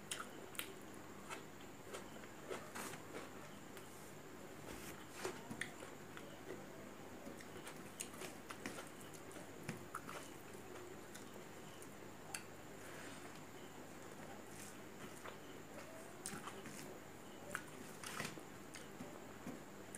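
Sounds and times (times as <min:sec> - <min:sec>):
faint background hum: 0:00.0 - 0:19.9
chewing rice: 0:07.2 - 0:12.5.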